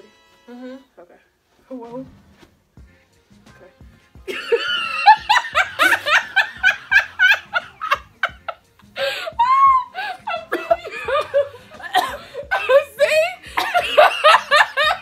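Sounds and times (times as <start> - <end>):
young woman laughing: 4.3 - 15.0.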